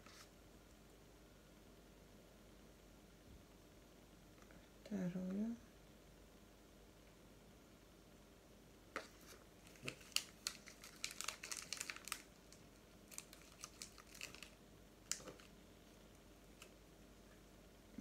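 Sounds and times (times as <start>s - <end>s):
light clicks and crinkles: 8.9s - 16.8s.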